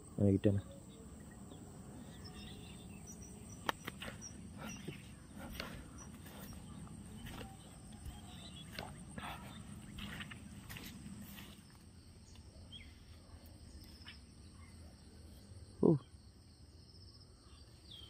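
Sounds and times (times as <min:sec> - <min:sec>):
faint bird calls: 0:00.0 - 0:11.6
insects: 0:00.0 - 0:18.0
footsteps through tall grass: 0:03.5 - 0:13.2.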